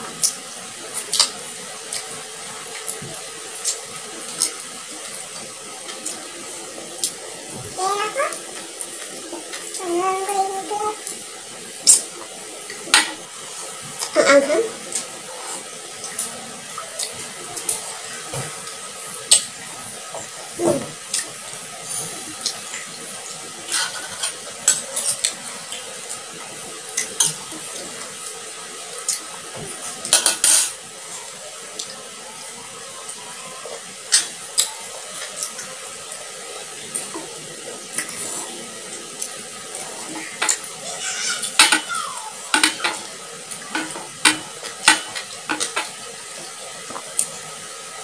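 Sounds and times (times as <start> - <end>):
fingers tapping on plates: 41.4 - 43.1.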